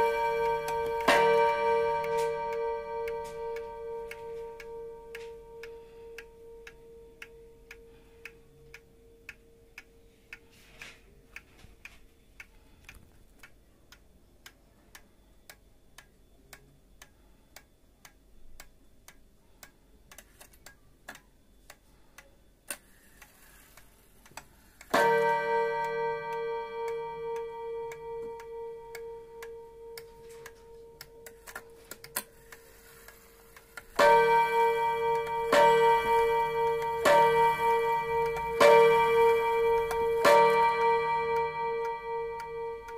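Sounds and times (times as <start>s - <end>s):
clock striking: 0.0s - 9.9s, 22.7s - 42.9s
wall clock ticking: 0.0s - 42.9s.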